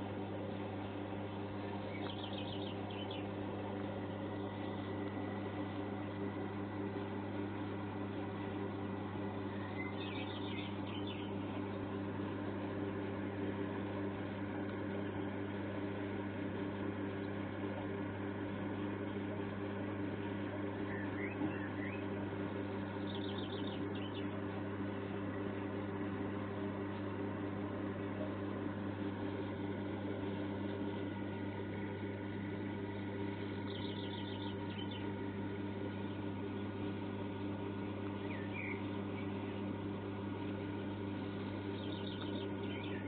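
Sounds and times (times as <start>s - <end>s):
steady low hum: 0.0s - 43.0s
bird chirp: 1.8s - 3.4s, 9.5s - 11.6s, 20.8s - 22.1s, 22.9s - 24.4s, 33.6s - 35.2s, 38.2s - 39.6s, 41.7s - 43.0s
bird trilling: 1.9s - 3.3s, 9.5s - 11.4s, 20.9s - 22.0s, 23.0s - 24.2s, 33.7s - 35.1s, 38.2s - 39.3s, 41.8s - 43.0s.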